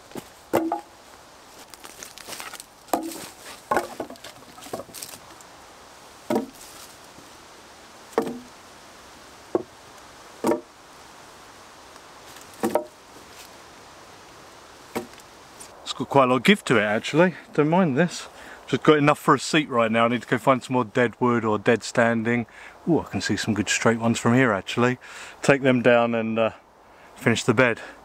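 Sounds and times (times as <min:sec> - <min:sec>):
wood knocking: 0:00.1 - 0:00.9, 0:02.4 - 0:05.2, 0:06.3 - 0:06.8, 0:08.1 - 0:08.5, 0:09.5 - 0:09.7, 0:10.4 - 0:10.7, 0:12.5 - 0:13.0, 0:14.9 - 0:15.2.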